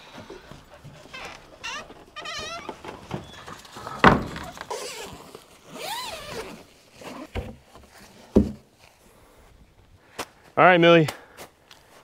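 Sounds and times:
loud thump: 4.0 - 4.5.

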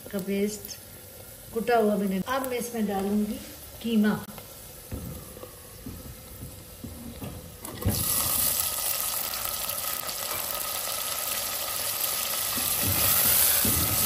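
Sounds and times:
meat sizzling in hot oil: 5.7 - 14.0.

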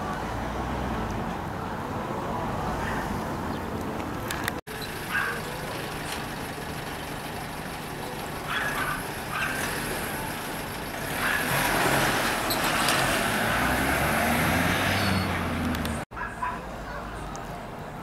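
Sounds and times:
background street hum: 0.0 - 18.0
van driving past: 4.7 - 16.0.

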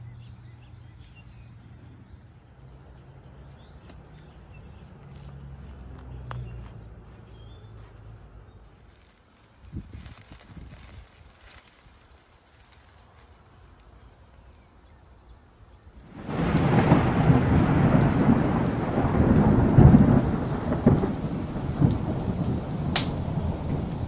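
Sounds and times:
steady rain: 16.1 - 24.0
thunder rolling: 16.1 - 24.0.

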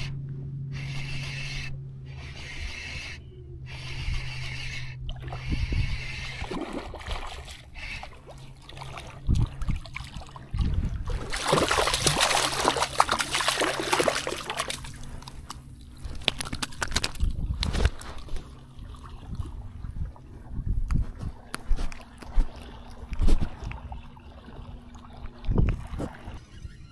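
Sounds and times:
water sloshing and splashing: 5.0 - 26.6.

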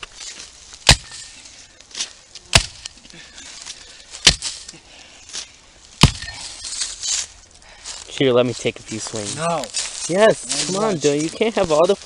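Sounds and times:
axe chopping into tree: 0.8 - 1.4, 2.5 - 3.0, 4.2 - 4.7, 6.0 - 6.4.

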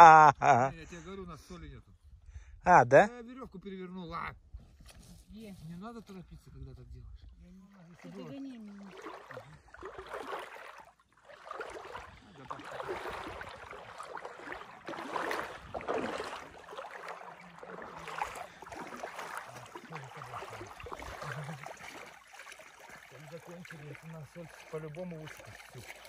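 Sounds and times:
water splashing and swishing: 7.2 - 26.0.

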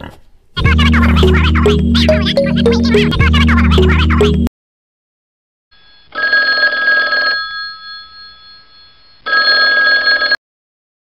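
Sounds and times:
telephone ringing: 5.8 - 10.4.

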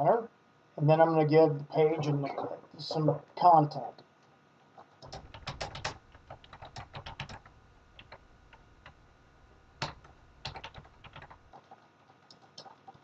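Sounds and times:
keyboard typing: 4.8 - 13.0.

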